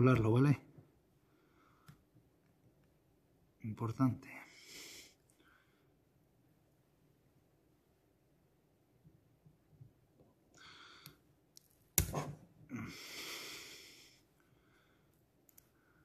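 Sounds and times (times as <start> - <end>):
person breathing through the nose: 4.5 - 5.9, 10.6 - 11.2, 12.7 - 15.1.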